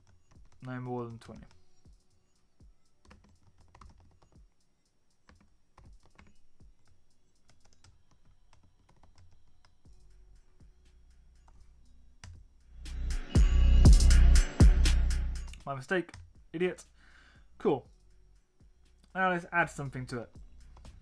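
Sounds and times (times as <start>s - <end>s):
keyboard typing: 0.0s - 1.6s, 3.0s - 9.8s.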